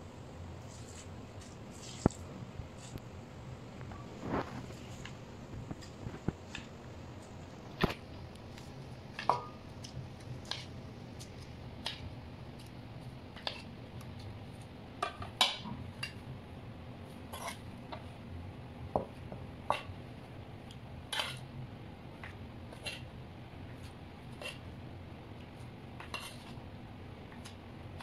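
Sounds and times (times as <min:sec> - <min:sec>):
low steady hum: 0:00.0 - 0:28.0
spoon tapping and scraping bowls: 0:08.5 - 0:12.7, 0:13.4 - 0:14.2, 0:15.0 - 0:16.2, 0:19.0 - 0:20.0, 0:21.1 - 0:21.4, 0:25.4 - 0:26.6.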